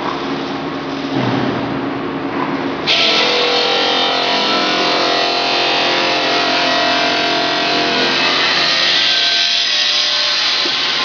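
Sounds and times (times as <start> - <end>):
motor hum: 2.8 - 11.0.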